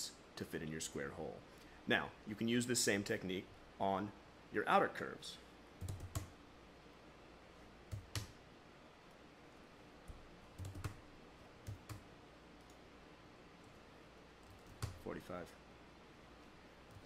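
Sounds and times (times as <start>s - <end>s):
room hiss: 0.0s - 17.0s
keyboard keystrokes: 10.1s - 11.0s.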